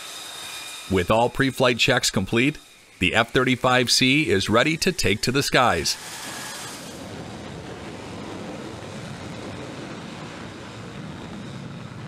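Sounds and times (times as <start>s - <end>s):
jet engines roaring: 0.0s - 12.0s.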